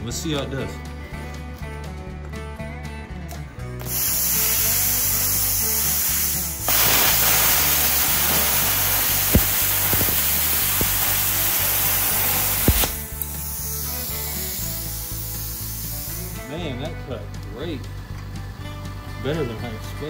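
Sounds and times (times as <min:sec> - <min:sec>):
plasma cutter arc hissing: 0:03.8 - 0:16.5
air hissing through torch: 0:03.8 - 0:16.6.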